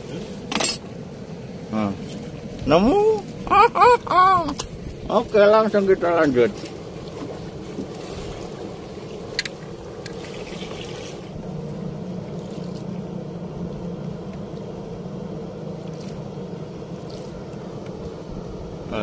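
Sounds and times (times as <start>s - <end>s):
boat engine humming: 0.0s - 19.0s
flowing river water: 5.1s - 13.2s.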